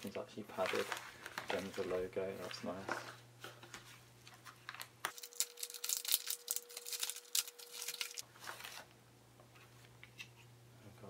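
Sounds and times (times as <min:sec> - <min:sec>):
plastic mailer crinkling: 0:00.0 - 0:03.1, 0:04.3 - 0:08.9.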